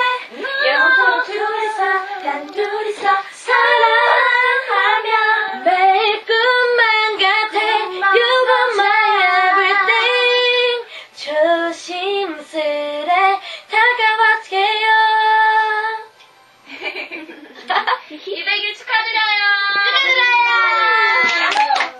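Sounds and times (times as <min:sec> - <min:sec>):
women singing pop song: 0:00.0 - 0:16.1.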